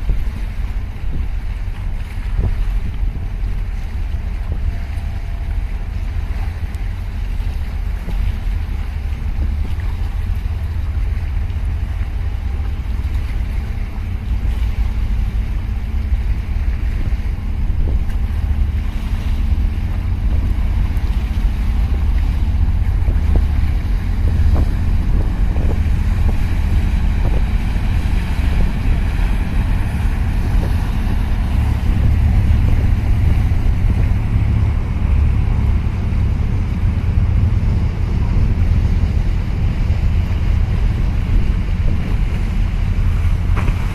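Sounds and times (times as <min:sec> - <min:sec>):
hiss of churned water: 0:00.0 - 0:43.9
wind buffeting microphone: 0:00.0 - 0:43.9.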